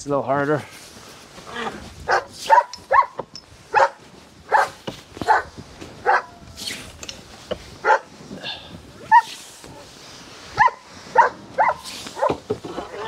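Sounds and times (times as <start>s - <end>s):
dog barking: 2.1s - 6.4s, 7.8s - 8.1s, 9.1s - 9.3s, 10.6s - 12.4s.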